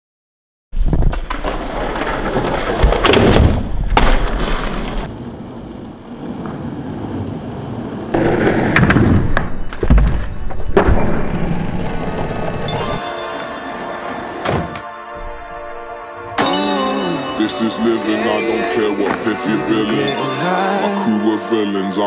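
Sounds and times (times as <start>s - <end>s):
skateboard wheels rolling on asphalt: 0.8s - 14.5s.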